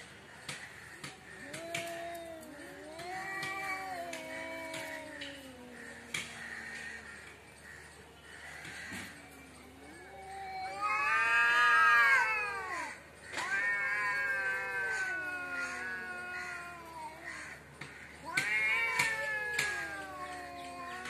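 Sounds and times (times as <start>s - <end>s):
cats yowling: 0.9s - 7.9s, 8.5s - 21.0s.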